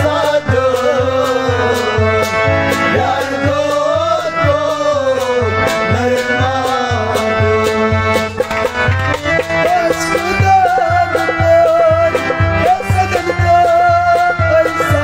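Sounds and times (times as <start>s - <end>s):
harmonium playing: 0.0s - 15.0s
steady drum beat: 0.0s - 15.0s
person singing wavering melody: 9.7s - 15.0s.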